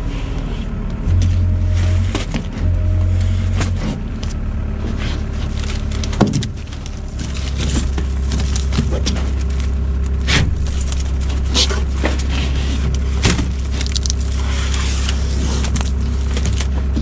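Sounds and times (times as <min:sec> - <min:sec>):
truck engine idling: 0:00.0 - 0:17.0
plastic mesh rolls knocking and scraping: 0:03.4 - 0:17.0.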